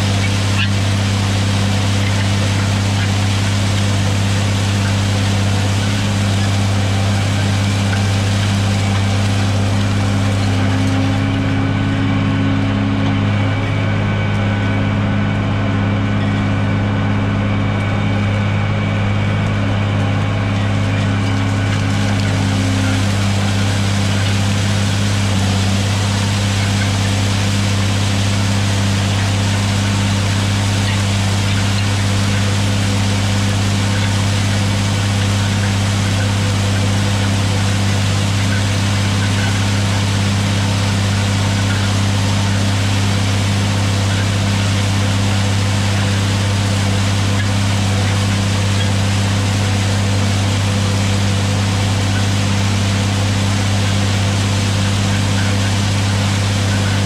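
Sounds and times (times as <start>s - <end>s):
tractor diesel engine running: 0.0s - 57.0s.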